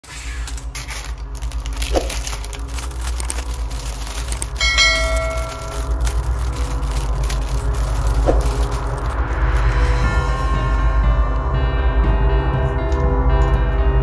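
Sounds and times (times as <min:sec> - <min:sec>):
plastic bag crinkling: 0:00.1 - 0:10.2.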